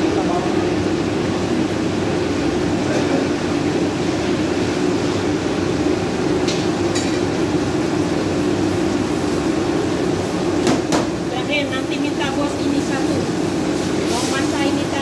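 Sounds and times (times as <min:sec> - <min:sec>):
gas burner rushing: 0:00.0 - 0:15.0
paste sizzling in oil: 0:12.5 - 0:15.0.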